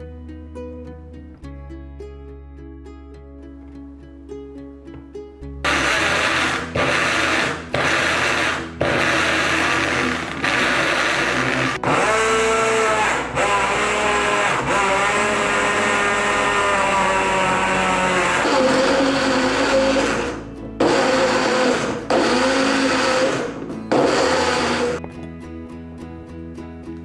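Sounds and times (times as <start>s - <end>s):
blender motor chopping fruit: 5.6s - 25.0s
steady whine: 5.6s - 25.0s.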